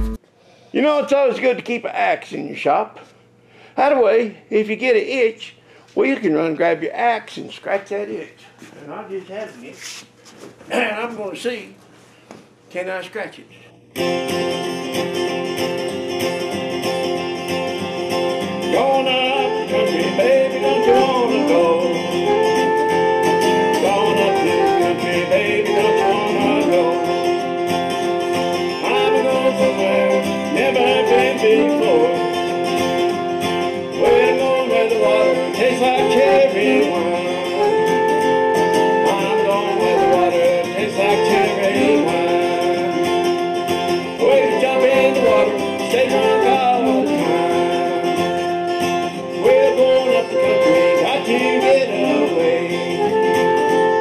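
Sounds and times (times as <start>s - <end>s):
acoustic guitar strumming: 0.0s - 0.2s, 13.9s - 54.0s
man singing: 18.7s - 22.8s, 23.6s - 27.5s, 28.8s - 32.7s, 34.0s - 48.6s, 49.4s - 54.0s.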